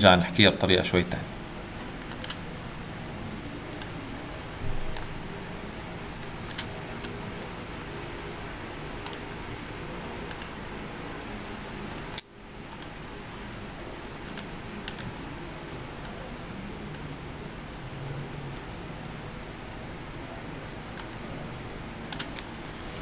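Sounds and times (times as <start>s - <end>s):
steady hiss and low hum: 0.0s - 23.0s
computer mouse clicks: 2.0s - 2.4s, 3.7s - 4.0s, 4.9s - 5.1s, 6.2s - 7.1s, 9.0s - 9.2s, 10.2s - 10.5s, 12.1s - 12.9s, 14.2s - 15.1s, 20.9s - 21.2s, 22.1s - 22.5s.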